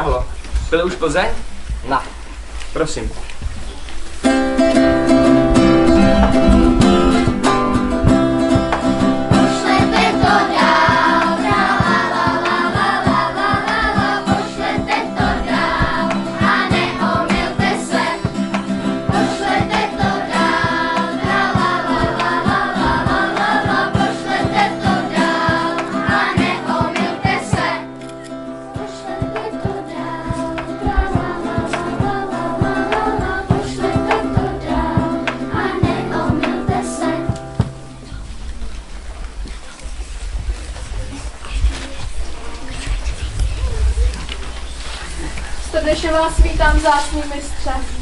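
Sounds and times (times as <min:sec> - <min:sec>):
strummed acoustic guitars: 0:04.2 - 0:39.0
group singing together: 0:08.1 - 0:38.0.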